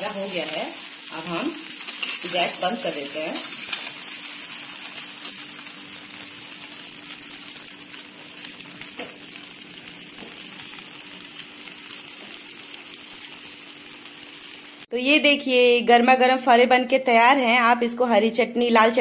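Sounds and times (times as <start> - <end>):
food sizzling in oil: 0.0 - 14.9.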